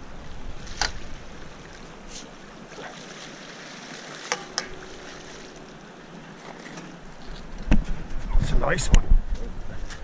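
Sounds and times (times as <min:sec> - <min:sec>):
river water rushing: 0:00.0 - 0:07.6
wind: 0:00.0 - 0:10.0.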